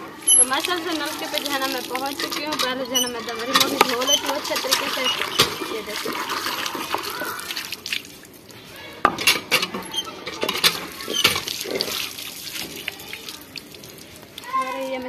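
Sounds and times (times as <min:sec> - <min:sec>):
water splashing from pump spout: 0:00.0 - 0:08.6, 0:09.2 - 0:15.0
pot and pump handle clinking: 0:00.2 - 0:07.0, 0:09.0 - 0:11.9.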